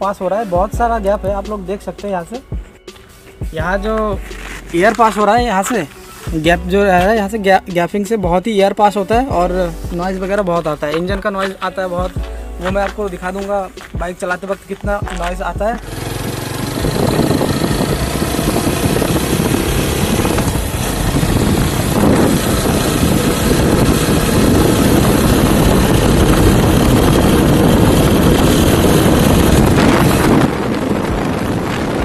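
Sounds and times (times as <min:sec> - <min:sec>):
motorcycle engine: 0:15.8 - 0:32.0
wind rush: 0:15.8 - 0:32.0.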